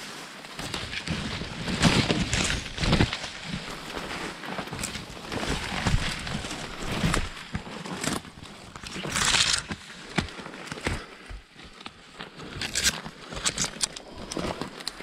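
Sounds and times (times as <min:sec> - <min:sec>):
leaves and branches rustling: 0:00.0 - 0:15.0
footsteps: 0:00.1 - 0:15.0
branches snapping: 0:00.5 - 0:15.0.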